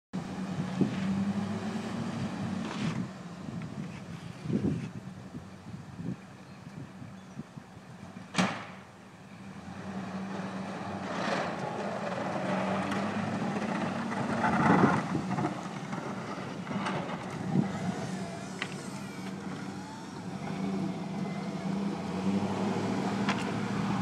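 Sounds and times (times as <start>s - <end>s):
pickup truck engine driving: 8.0s - 24.0s.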